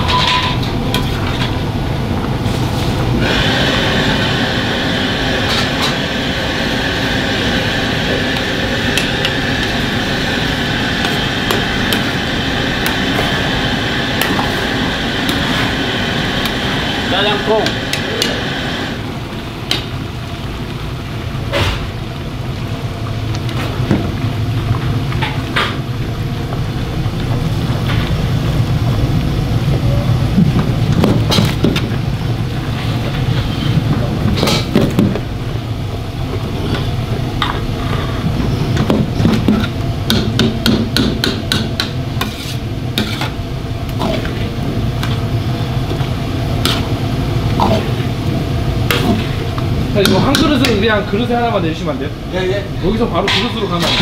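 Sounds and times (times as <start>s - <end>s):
gas burner rumble: 0.0s - 54.0s
sauce simmering: 1.0s - 30.9s.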